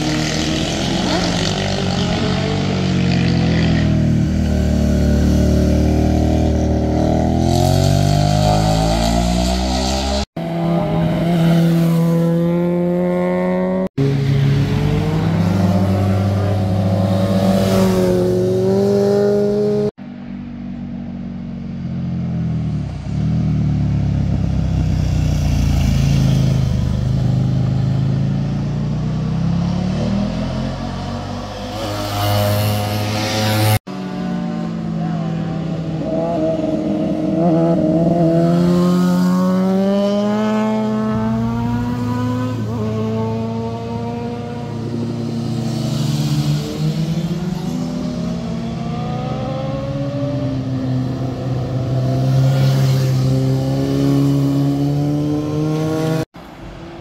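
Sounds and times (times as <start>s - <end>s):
motorcycle engines accelerating: 0.0s - 20.0s, 21.9s - 56.3s.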